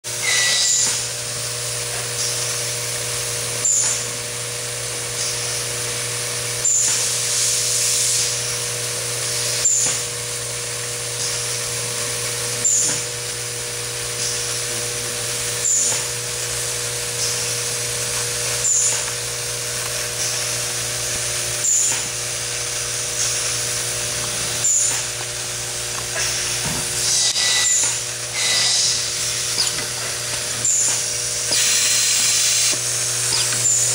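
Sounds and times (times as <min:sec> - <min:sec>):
sharp click with air hiss: 0:05.1 - 0:05.6, 0:06.6 - 0:08.4, 0:09.5 - 0:10.1, 0:23.1 - 0:23.6.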